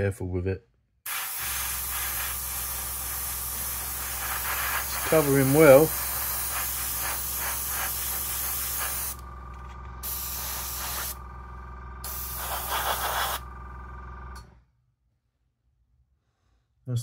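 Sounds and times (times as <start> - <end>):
airbrush spraying hiss: 1.1 - 9.2, 10.0 - 11.2, 12.0 - 13.4
steady low hum: 1.4 - 14.7.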